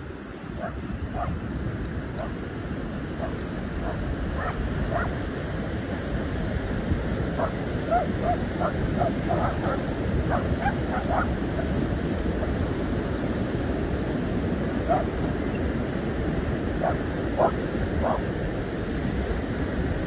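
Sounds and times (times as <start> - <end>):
ocean surf rushing: 0.0 - 20.0
dogs barking and yipping: 0.6 - 2.4, 3.0 - 5.3, 7.4 - 12.6, 14.8 - 20.0.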